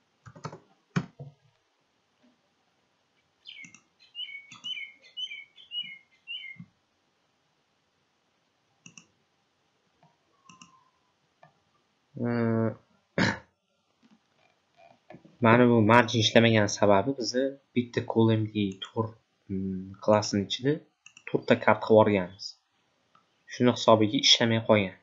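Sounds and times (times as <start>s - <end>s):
keyboard and mouse clicks: 0.2s - 1.4s, 3.6s - 3.9s, 4.5s - 4.8s, 8.8s - 9.1s, 10.4s - 10.8s, 21.0s - 21.3s.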